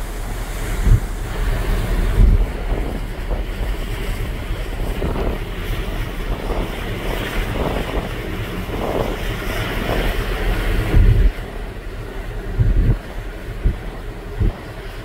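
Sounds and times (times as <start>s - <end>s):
rush of water: 0.0s - 15.0s
wind buffeting microphone: 0.0s - 15.0s.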